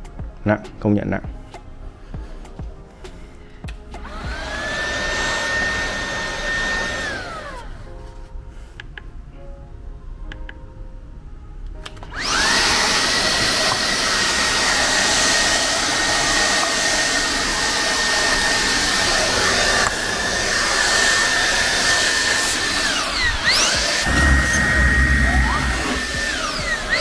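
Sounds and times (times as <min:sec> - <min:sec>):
stick vacuum running: 0:12.1 - 0:27.0
high motor whine: 0:22.7 - 0:27.0
rushing air: 0:23.4 - 0:27.0.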